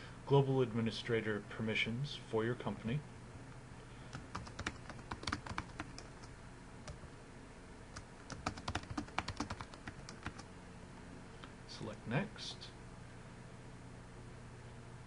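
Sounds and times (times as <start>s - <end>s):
keyboard keystrokes clicking: 4.1s - 6.3s, 8.0s - 10.5s.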